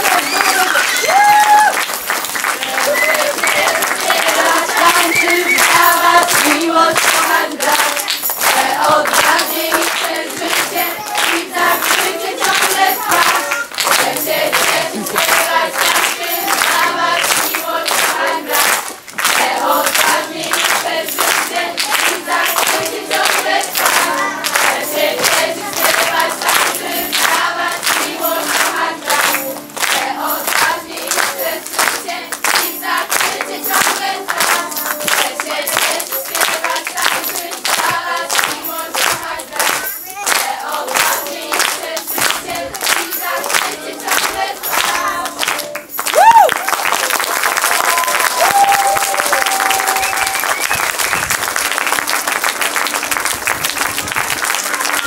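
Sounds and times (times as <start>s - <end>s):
rhythmic hand clapping: 0.0s - 55.0s
children singing in unison: 2.6s - 45.8s.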